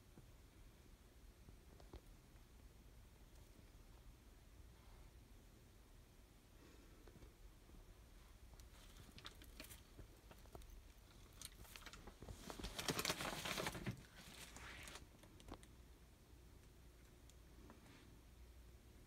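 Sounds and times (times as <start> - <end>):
rustling and crinkling: 6.8 - 15.8.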